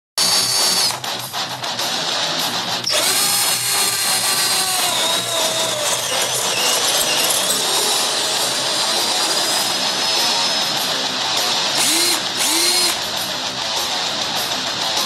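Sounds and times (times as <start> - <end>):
power drill boring through metal: 0.2 - 1.1, 2.8 - 13.2.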